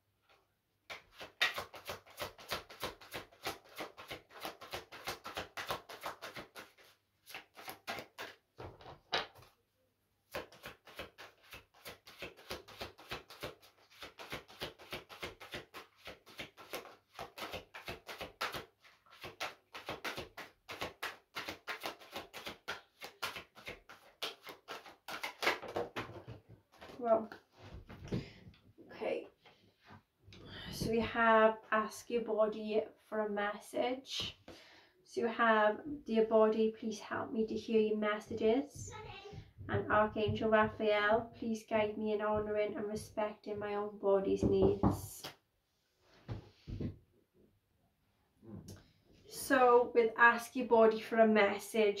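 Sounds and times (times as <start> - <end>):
cards being shuffled by hand: 0.9 - 9.6, 10.3 - 27.0.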